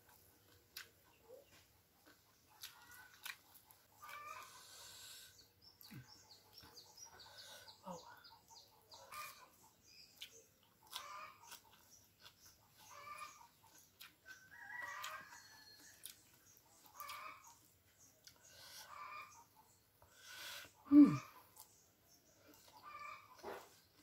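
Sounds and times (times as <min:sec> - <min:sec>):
chickens clucking: 0:00.7 - 0:24.0
rooster crowing: 0:14.5 - 0:16.0.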